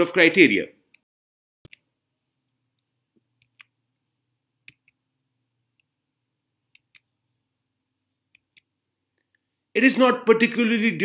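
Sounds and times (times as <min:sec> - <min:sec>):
computer mouse clicks: 0:01.6 - 0:01.9, 0:02.7 - 0:03.8, 0:04.6 - 0:05.0, 0:06.7 - 0:07.1, 0:08.3 - 0:09.4.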